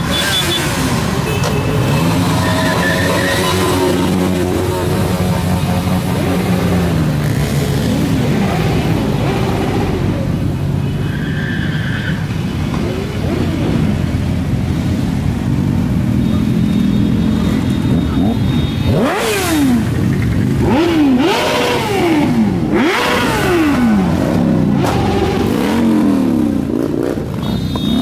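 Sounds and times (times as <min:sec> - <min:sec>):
motorcycles passing by: 0:00.0 - 0:11.1, 0:12.0 - 0:28.0.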